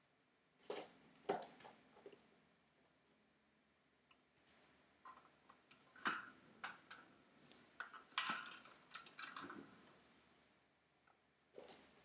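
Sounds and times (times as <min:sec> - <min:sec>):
parts clattering in bins: 0:05.1 - 0:10.1.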